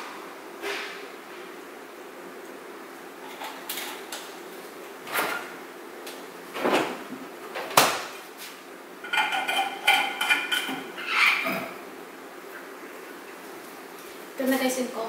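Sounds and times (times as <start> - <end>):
knocks and clinks of dishes: 9.0 - 11.6.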